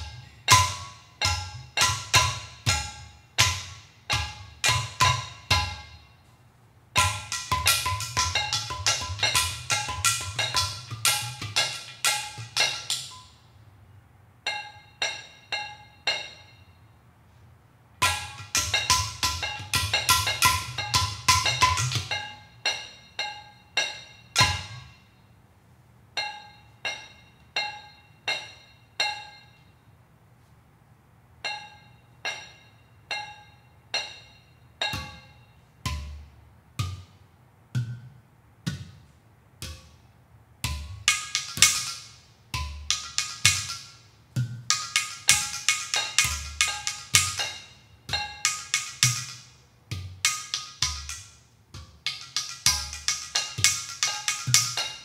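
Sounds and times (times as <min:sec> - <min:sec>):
ceramic pots struck ringing: 0:00.0 - 0:06.3, 0:07.0 - 0:13.5, 0:14.4 - 0:17.0, 0:18.0 - 0:25.4, 0:26.2 - 0:29.9, 0:31.4 - 0:37.2, 0:40.6 - 0:55.0.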